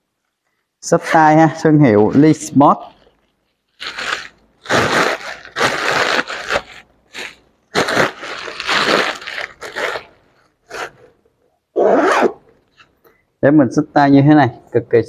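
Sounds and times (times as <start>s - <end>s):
bag rustling and crinkling: 1.9s - 10.9s.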